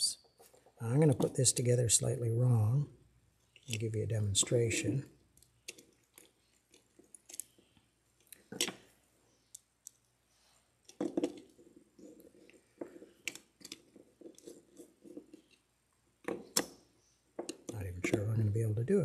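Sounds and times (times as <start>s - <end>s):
small metal parts clicking: 5.3s - 7.6s.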